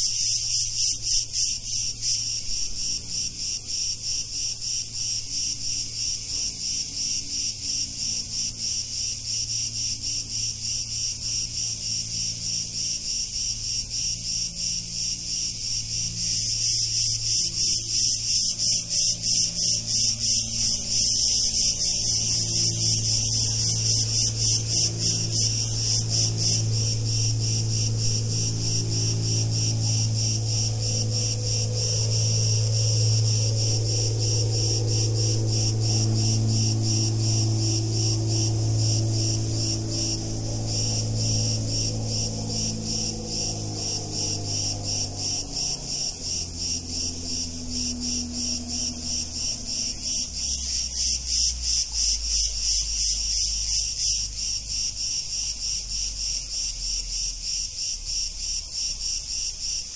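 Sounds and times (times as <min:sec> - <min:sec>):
cicadas chirring: 0:00.0 - 0:59.9
low hum: 0:00.0 - 0:59.9.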